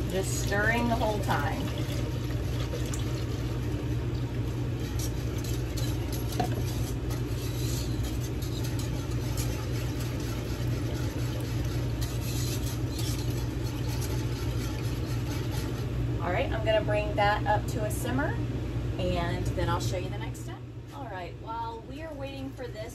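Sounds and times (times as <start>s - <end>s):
low machine hum: 0.0s - 22.9s
wire whisk scraping in a saucepan: 4.7s - 15.9s.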